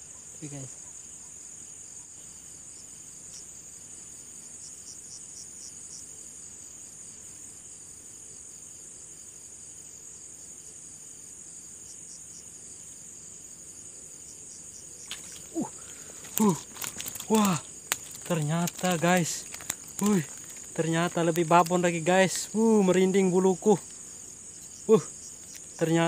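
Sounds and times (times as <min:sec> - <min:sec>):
crickets trilling: 0:00.0 - 0:26.0
repeating insect chirps: 0:15.0 - 0:26.0.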